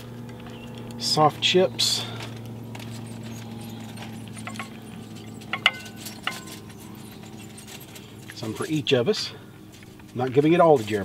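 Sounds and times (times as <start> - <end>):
steady low hum: 0.0 - 11.0
spatula clinking and scraping plates: 4.1 - 7.9.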